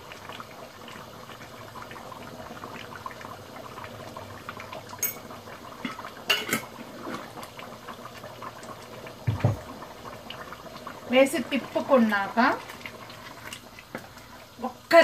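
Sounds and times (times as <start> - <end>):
curry bubbling in a pot: 0.0 - 15.0
cookware clinking: 5.0 - 6.7.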